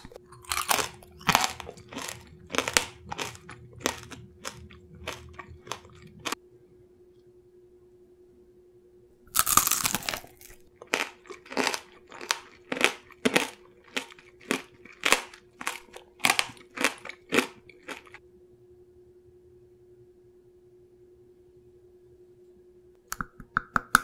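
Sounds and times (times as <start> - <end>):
candy shell crunching: 0.0 - 6.4, 9.3 - 18.2.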